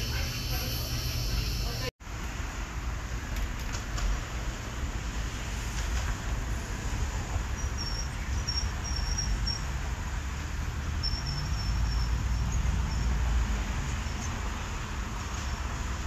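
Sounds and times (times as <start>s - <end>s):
insects chirping: 7.6s - 9.7s, 11.0s - 13.2s.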